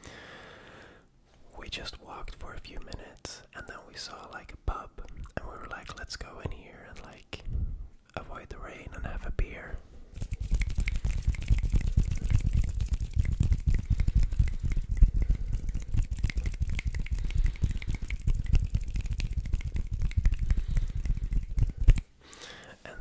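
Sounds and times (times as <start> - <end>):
hands rubbing rustles: 10.1 - 22.1.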